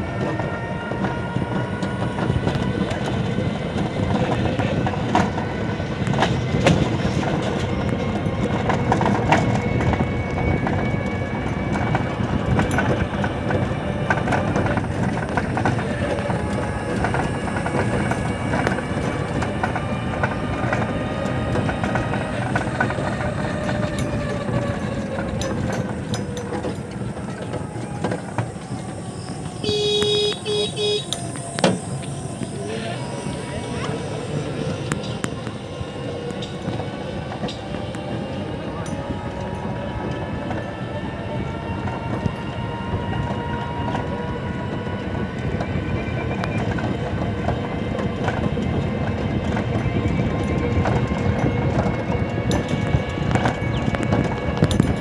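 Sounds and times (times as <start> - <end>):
road rumble and rattle: 0.0 - 55.0
motor whine: 25.0 - 36.7
horn beep: 29.5 - 31.8.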